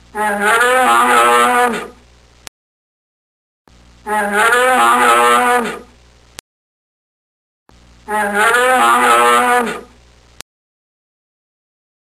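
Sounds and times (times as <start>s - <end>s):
animal lowing call: 0.1s - 2.0s, 4.1s - 5.9s, 8.1s - 10.0s.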